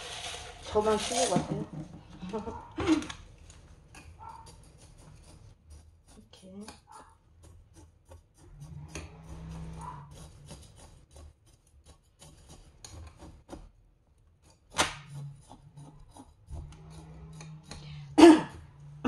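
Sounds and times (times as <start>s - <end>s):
grit crunching and scraping: 0.0s - 1.6s, 3.4s - 13.6s.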